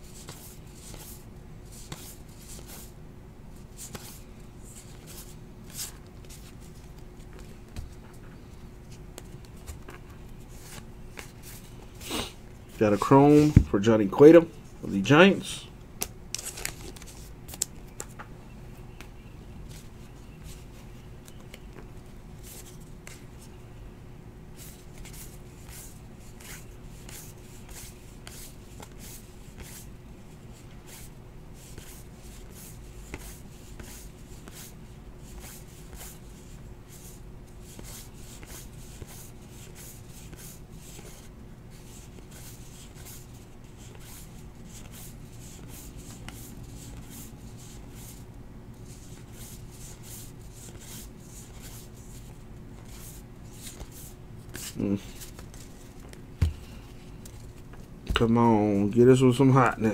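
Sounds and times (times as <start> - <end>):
cards being flipped through: 9.2 - 12.3, 16.0 - 18.3, 49.1 - 58.3.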